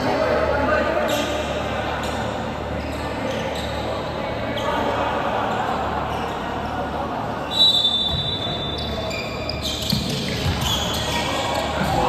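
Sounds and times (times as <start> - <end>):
sneakers squeaking on court: 1.1 - 4.9, 7.5 - 12.0
basketball bouncing on court: 9.7 - 12.0.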